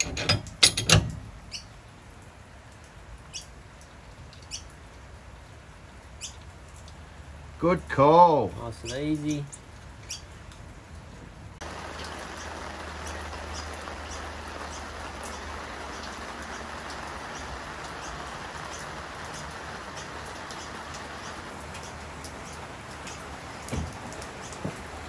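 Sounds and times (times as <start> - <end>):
rain on wet driveway: 0.0 - 25.0
drips: 11.6 - 25.0.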